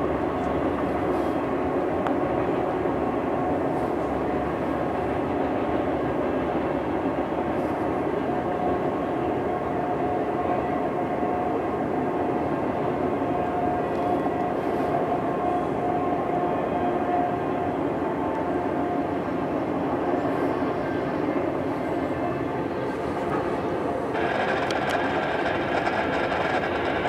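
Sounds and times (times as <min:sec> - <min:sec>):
freight cars rolling on rails: 0:21.8 - 0:27.0.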